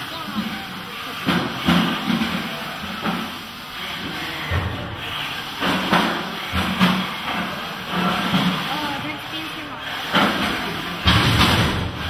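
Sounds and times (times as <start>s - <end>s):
sharp knocks of robots ramming: 11.0s - 12.0s.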